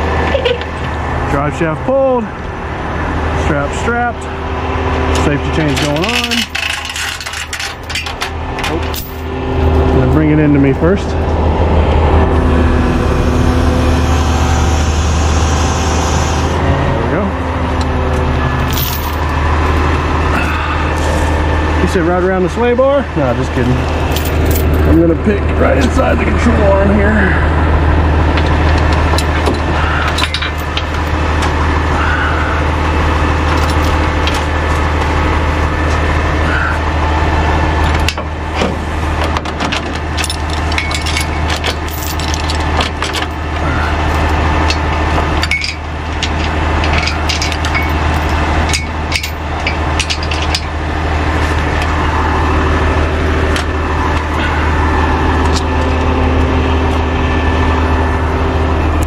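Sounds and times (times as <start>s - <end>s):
truck engine idling: 0.0s - 59.0s
metal chains clinking and clanking: 5.2s - 9.3s, 18.6s - 19.8s, 23.7s - 26.1s, 28.4s - 31.2s, 33.4s - 34.5s, 39.6s - 50.8s.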